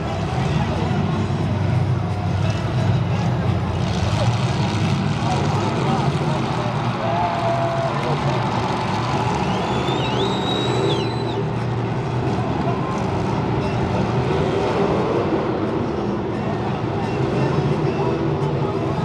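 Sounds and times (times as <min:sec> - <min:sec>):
car engines running together: 0:00.0 - 0:19.0
high whistle-like tone: 0:09.4 - 0:11.5.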